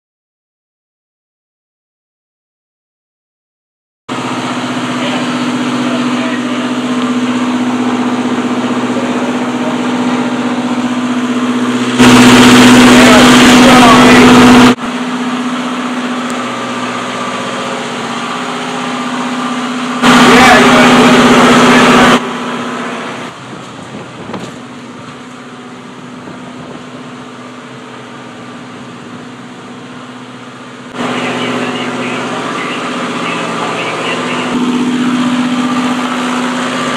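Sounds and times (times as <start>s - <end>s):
machinery humming: 4.1s - 36.9s.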